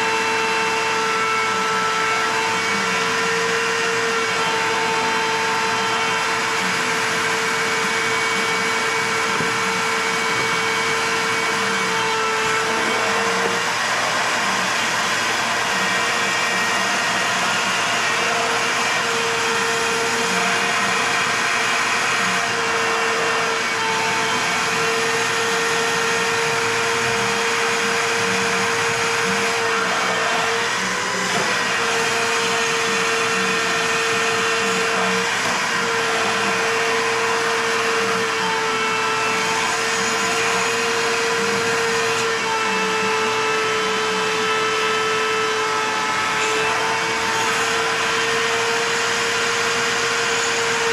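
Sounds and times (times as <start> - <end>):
shop vacuum running: 0.0 - 50.9.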